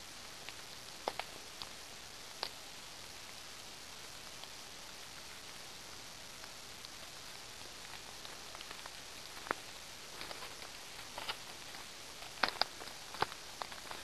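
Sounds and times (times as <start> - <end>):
faint steady hiss: 0.0 - 14.0
footsteps crunching dry leaves: 8.8 - 14.0.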